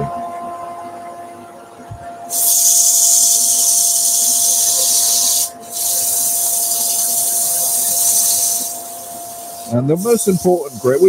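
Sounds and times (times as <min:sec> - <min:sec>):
faint machine hum: 0:00.0 - 0:11.0
sandpaper hissing on spinning wood: 0:02.3 - 0:11.0.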